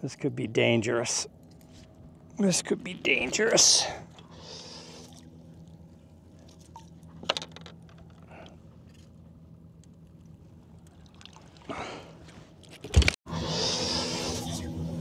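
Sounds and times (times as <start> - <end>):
steady low hum: 0.0 - 15.0
water sloshing against boat: 1.3 - 13.1.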